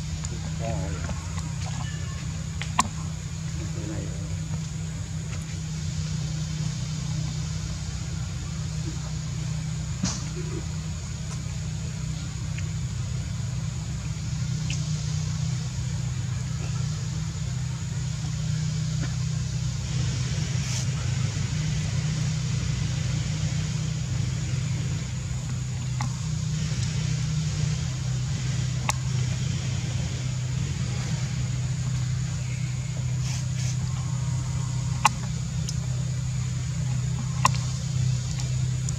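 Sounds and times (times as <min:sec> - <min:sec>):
high-pitched whine: 0:00.0 - 0:38.9
low engine hum: 0:00.0 - 0:38.9.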